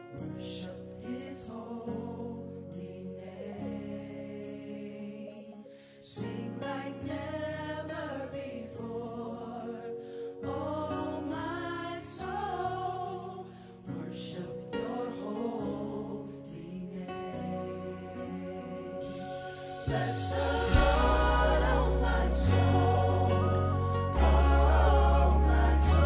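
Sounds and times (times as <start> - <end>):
voices singing gospel: 0.0 - 26.0
sustained chords: 17.6 - 26.0.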